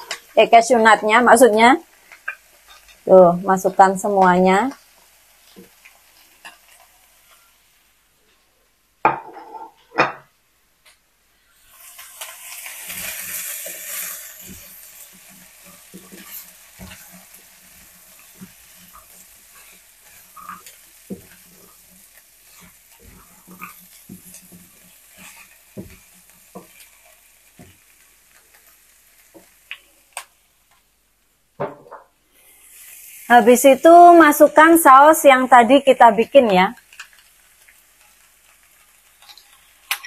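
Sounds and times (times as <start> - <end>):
food sizzling in a wok: 0.0 - 8.4, 11.2 - 31.4, 32.2 - 40.0
spatula stirring and scraping: 2.1 - 3.0, 11.9 - 29.7.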